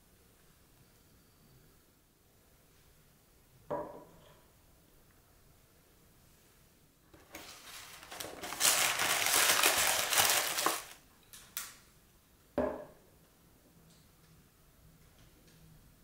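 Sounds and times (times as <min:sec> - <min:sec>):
paper bag rustling: 0:07.2 - 0:11.0.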